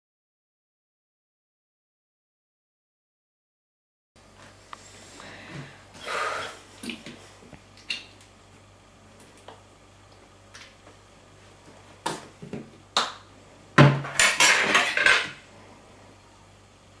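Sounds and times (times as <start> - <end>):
knife and fork clattering on plate: 14.2 - 15.4.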